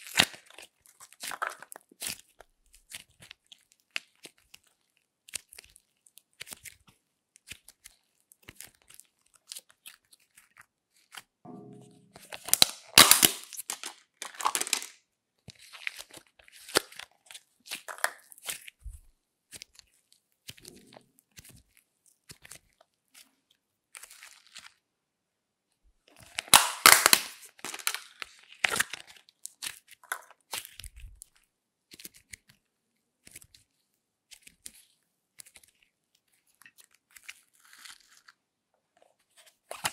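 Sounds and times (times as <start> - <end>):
slime crackling and popping: 0.0 - 11.2, 12.3 - 15.0, 26.2 - 32.5.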